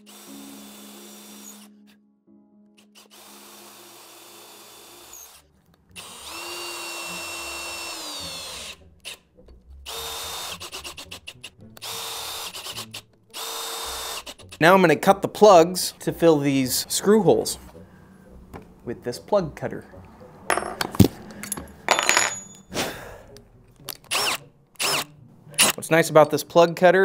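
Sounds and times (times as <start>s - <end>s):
power drill running: 0.0s - 1.7s, 2.8s - 5.4s, 6.0s - 8.8s, 9.9s - 11.2s, 11.8s - 14.4s, 24.1s - 25.0s.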